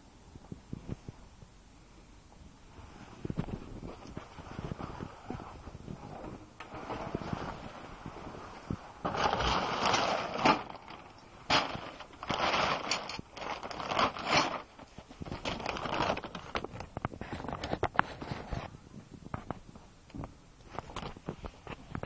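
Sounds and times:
fabric and gear rustling: 2.7 - 18.8.

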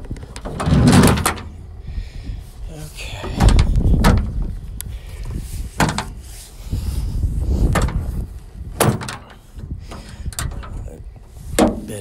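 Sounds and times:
low rumble: 0.0 - 8.8
metal tailgate knocks and clunks: 0.3 - 1.6, 3.2 - 4.5, 5.7 - 6.2, 7.6 - 10.9, 11.6 - 12.0.

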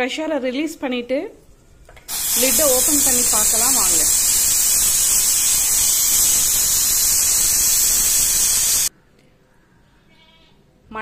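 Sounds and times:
steam hissing from pressure cooker: 2.1 - 8.9.

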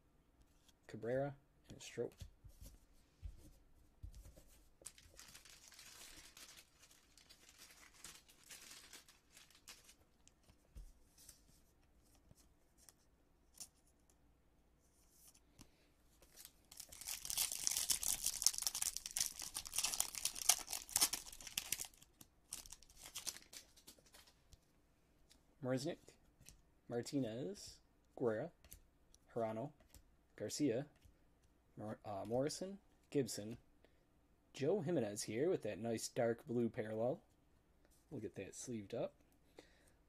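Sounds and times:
wrapper tearing and crinkling: 4.8 - 10.0, 16.7 - 23.8.

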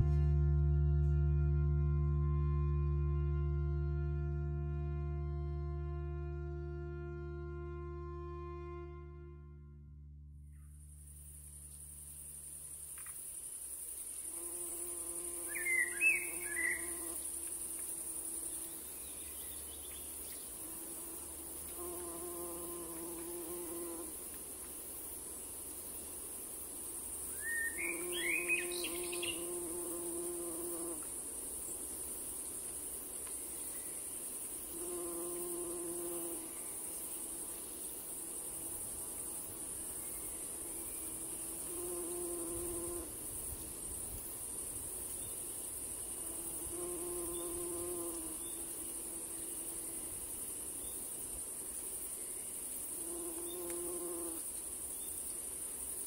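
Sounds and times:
insect buzzing hum: 0.0 - 56.0
insects hissing: 10.4 - 56.0.

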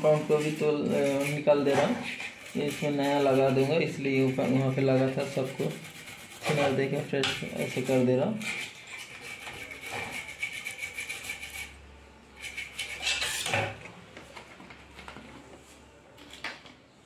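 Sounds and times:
toothbrush scrubbing metal: 0.0 - 13.6.

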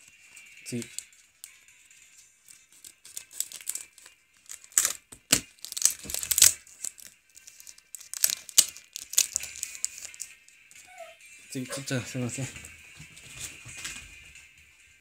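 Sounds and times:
foil wrapper tearing and crinkling: 0.7 - 1.6, 2.4 - 10.4.

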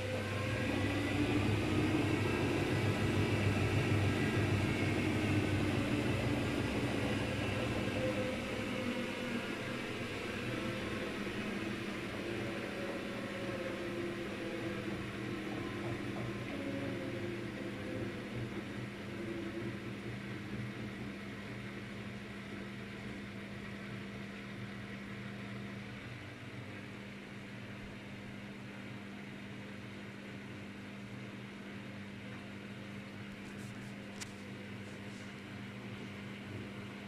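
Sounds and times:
washing machine spin winding down: 0.0 - 26.2.

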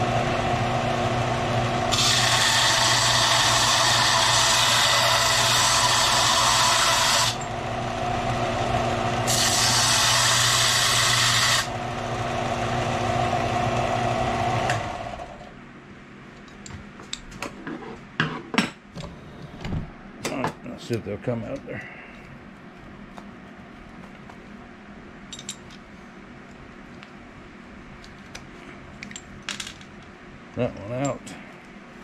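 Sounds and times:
belt sander grinding metal: 1.6 - 13.5.

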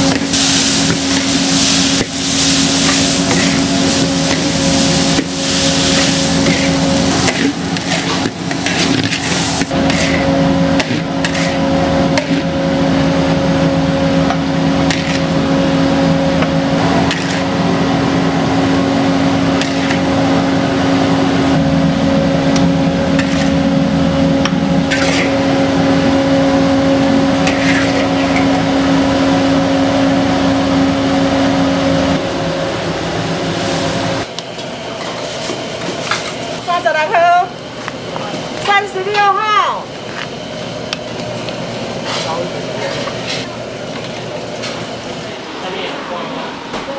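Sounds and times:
wok burner and extractor roar: 0.0 - 46.9
metal spatula scraping a wok: 1.1 - 12.5, 14.9 - 15.4, 17.0 - 17.6, 19.6 - 20.2, 22.6 - 23.7, 24.9 - 25.4, 27.4 - 28.6, 42.0 - 43.5.

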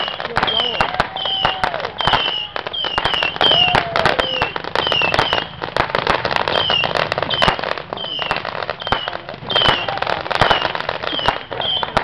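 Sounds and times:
low arcing whistle: 0.0 - 5.6, 6.5 - 9.9, 10.5 - 12.0
fireworks pops and bangs: 0.0 - 12.0
high falling whistles: 6.5 - 9.8.

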